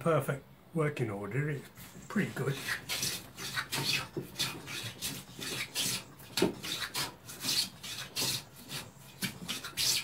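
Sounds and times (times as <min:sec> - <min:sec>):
plane shaving wood: 0:02.2 - 0:10.0.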